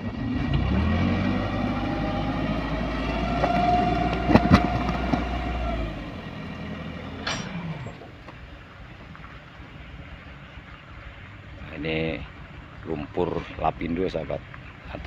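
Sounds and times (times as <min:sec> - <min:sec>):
truck engine whining under load: 0:00.0 - 0:11.6
sharp metal clanks: 0:07.2 - 0:07.9
load sliding out: 0:07.2 - 0:08.1.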